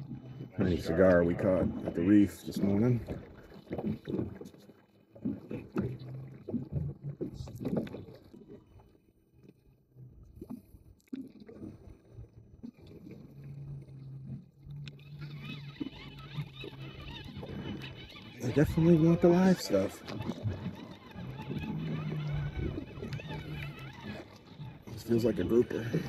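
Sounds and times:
electric motor humming: 14.7 - 26.0.

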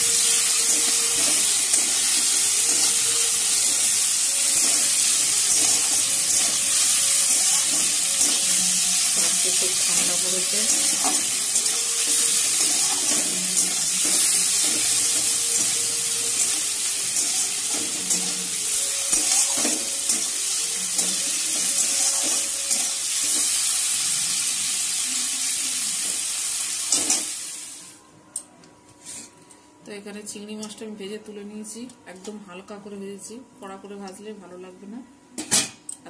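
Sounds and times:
prawns sizzling in oil: 0.0 - 27.9.

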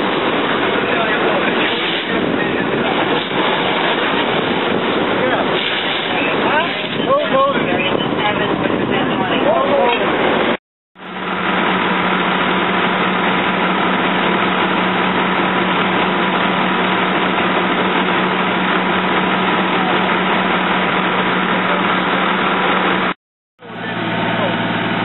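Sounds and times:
vehicle engine idling: 11.0 - 25.0.

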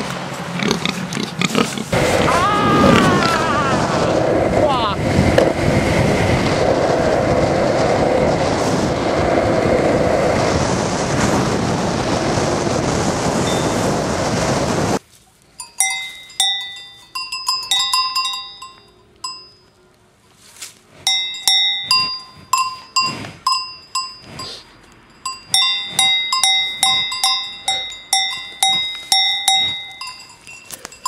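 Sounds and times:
cow sniffing: 0.0 - 2.2, 20.8 - 29.9
cowbells clanking: 15.6 - 19.7, 21.0 - 31.0.

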